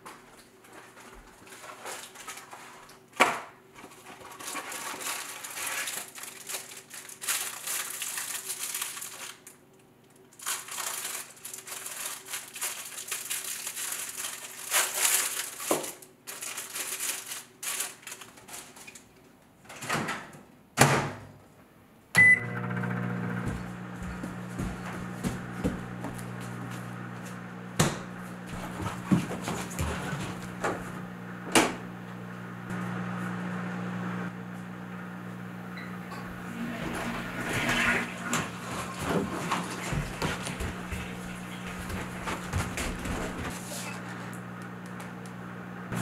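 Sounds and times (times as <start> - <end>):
food rustling: 0.1 - 3.1, 3.7 - 9.6, 10.3 - 19.2, 38.1 - 44.4
microwave running hum: 22.1 - 46.0
microwave beep: 22.2 - 23.4, 35.7 - 36.5
knocks on kitchen counter: 27.8 - 28.1.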